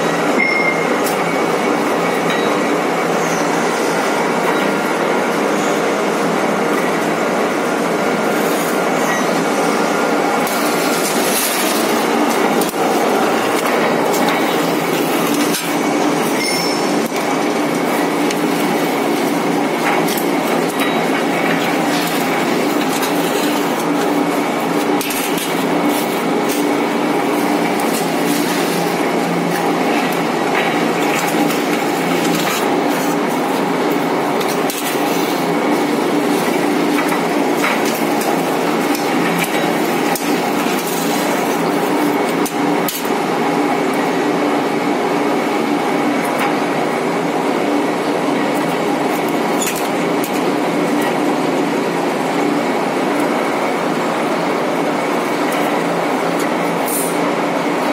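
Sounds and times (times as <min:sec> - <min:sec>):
faint high machine whine: 0:00.0 - 0:06.0, 0:08.6 - 0:11.4, 0:14.6 - 0:19.1
roll forming machine running: 0:00.0 - 0:57.9.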